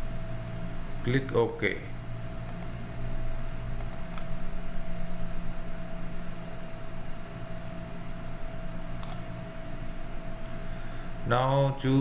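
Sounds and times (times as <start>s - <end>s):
electrical hum: 0.0s - 12.0s
computer mouse clicks: 2.4s - 2.8s, 3.8s - 4.3s, 9.0s - 9.3s.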